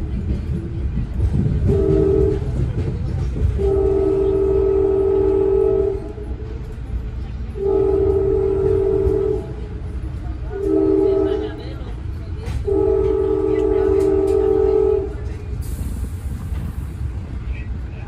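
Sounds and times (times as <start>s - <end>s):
train rumbling on rails: 0.0s - 18.0s
train horn blasts: 1.6s - 2.8s, 3.5s - 6.5s, 7.6s - 9.9s, 10.5s - 11.8s, 12.6s - 15.4s.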